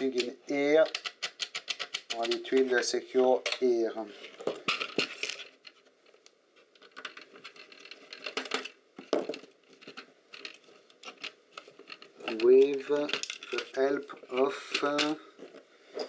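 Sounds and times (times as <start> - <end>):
plastic and metal parts clattering: 0.0 - 2.8, 4.4 - 16.0.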